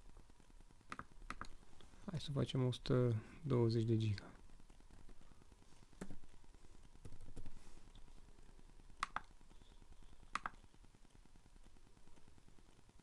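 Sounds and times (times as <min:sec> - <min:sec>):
laptop keys tapping: 0:00.8 - 0:01.6, 0:06.9 - 0:07.6, 0:08.9 - 0:10.7.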